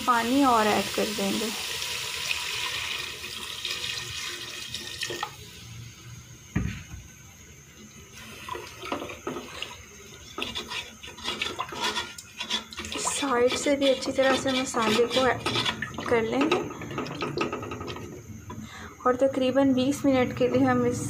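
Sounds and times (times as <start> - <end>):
water pouring into pot: 0.0 - 5.6, 8.1 - 18.1
knock: 6.5 - 7.0
wooden spoon scraping pot: 8.9 - 18.2.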